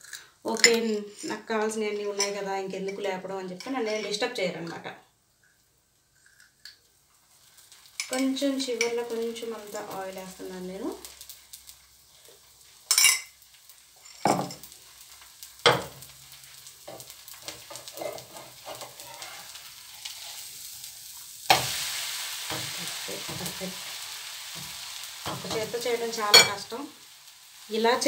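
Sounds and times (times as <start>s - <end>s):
batter sizzling in oil: 0.0s - 28.0s
metal spatula scraping pan: 16.9s - 20.5s.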